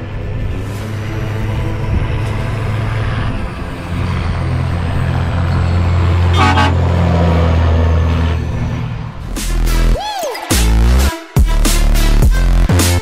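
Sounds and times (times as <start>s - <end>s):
truck diesel engine passing: 0.0s - 10.0s
horn toot: 6.2s - 7.4s.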